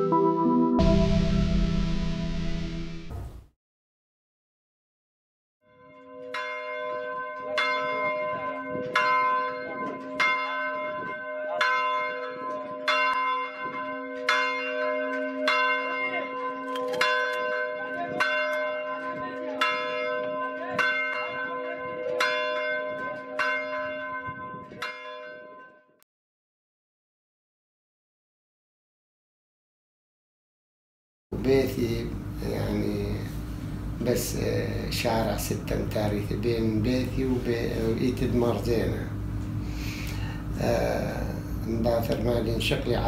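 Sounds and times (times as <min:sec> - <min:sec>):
church bell tolling: 0:05.7 - 0:25.9, 0:34.0 - 0:39.2.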